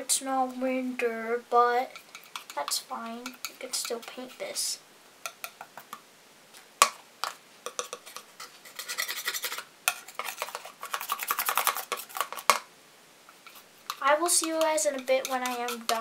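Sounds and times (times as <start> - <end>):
palette knife clicking and scraping: 1.9 - 4.2, 7.2 - 12.6, 13.5 - 16.0.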